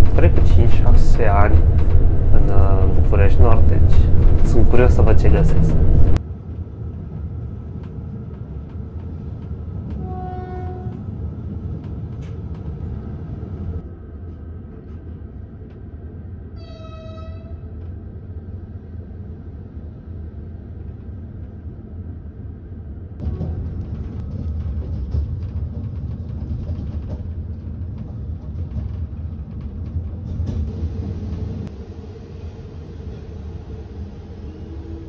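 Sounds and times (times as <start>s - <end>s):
train rumbling on track: 0.0s - 35.0s
train horn blasts: 10.0s - 11.0s, 16.6s - 17.6s.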